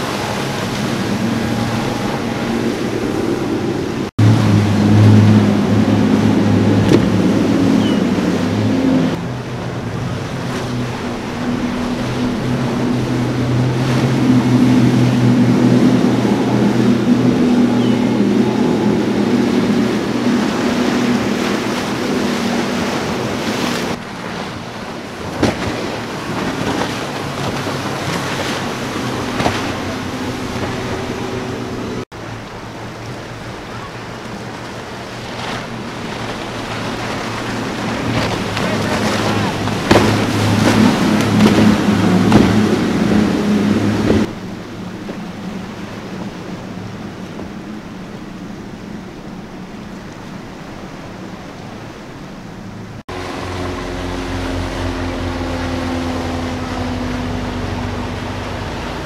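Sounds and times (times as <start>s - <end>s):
boat engine hum: 0.0s - 59.0s
rushing wake and waves: 0.0s - 59.0s.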